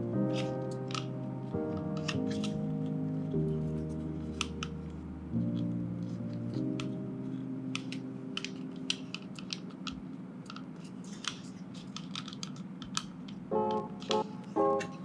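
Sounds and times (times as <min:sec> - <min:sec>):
background music chord: 0:00.0 - 0:10.3, 0:13.5 - 0:15.0
plastic parts clicking: 0:00.3 - 0:03.0, 0:04.2 - 0:07.0, 0:07.7 - 0:15.0.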